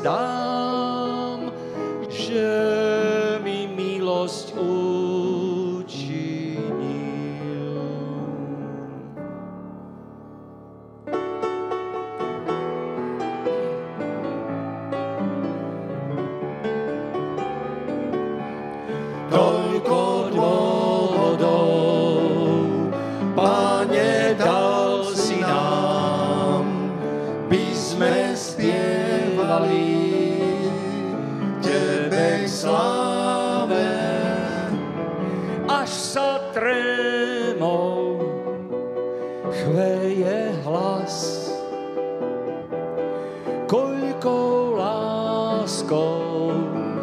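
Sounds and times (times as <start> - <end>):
man singing a hymn: 0.0 - 9.2, 19.3 - 38.8, 39.5 - 41.8, 43.6 - 47.0
piano: 0.0 - 47.0.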